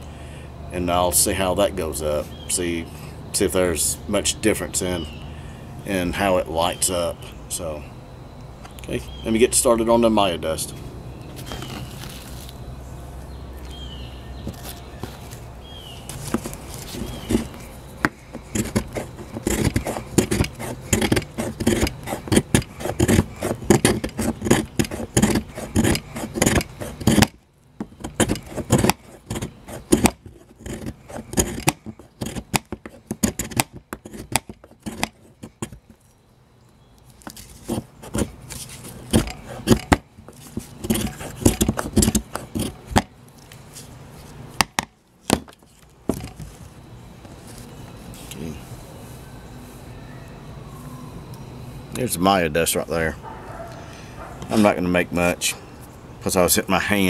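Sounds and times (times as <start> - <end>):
knife scraping wood: 16.0 - 36.2, 37.1 - 46.7.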